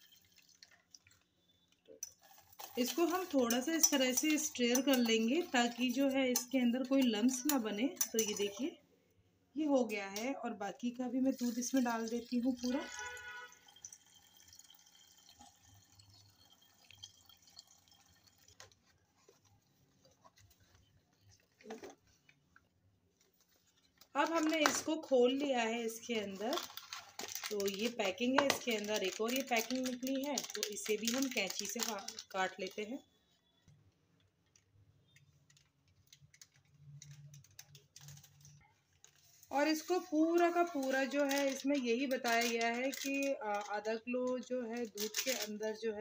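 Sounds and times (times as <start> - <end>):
milk pouring into a saucepan: 0.0 - 6.1, 11.2 - 19.7
scissors snipping plastic packet: 28.6 - 32.2.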